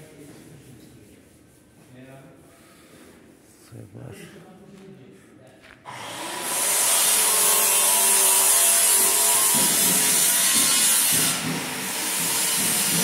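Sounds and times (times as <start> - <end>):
power tool grinding metal: 5.9 - 13.0.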